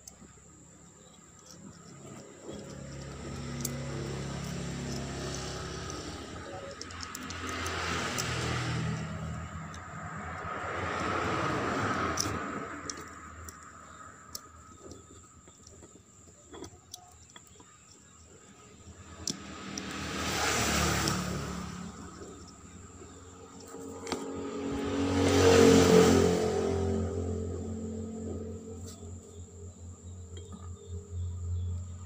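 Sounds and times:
small metal parts clicking: 0.0s - 24.6s
road traffic passing: 0.0s - 32.0s.

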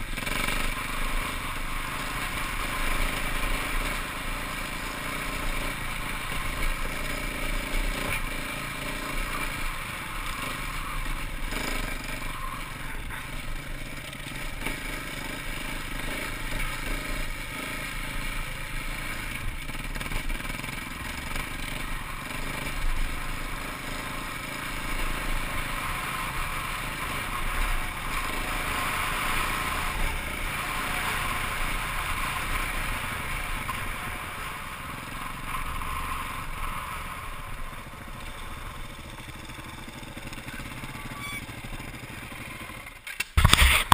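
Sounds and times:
dirt bike engine running: 0.0s - 43.9s.

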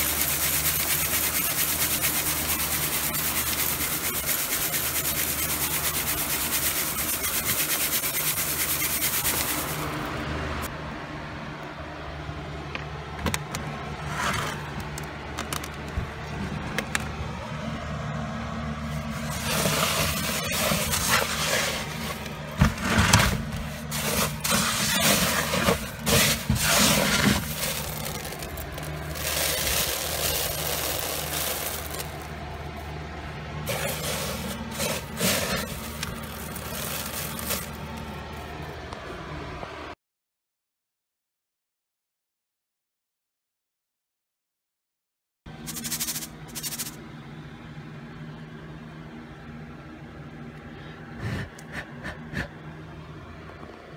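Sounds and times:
hand raking through dry seeds: 0.0s - 10.0s, 18.9s - 32.5s, 33.6s - 38.5s
steady low hum: 0.0s - 39.9s, 45.5s - 53.9s.

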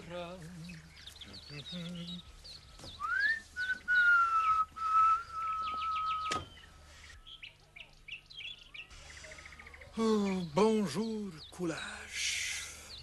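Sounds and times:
birds chirping: 0.0s - 13.0s
man whistling: 3.0s - 6.4s.

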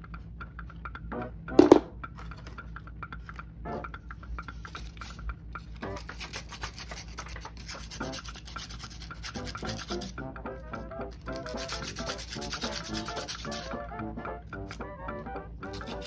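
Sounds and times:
background music with melody: 0.0s - 16.0s
sanding pad rubbing plastic: 6.1s - 10.1s, 11.3s - 13.7s.

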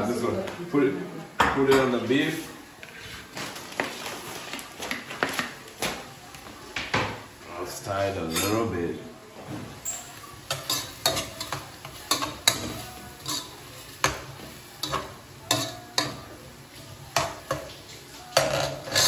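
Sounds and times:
metal spoon scraping steel pot: 18.4s - 19.0s.

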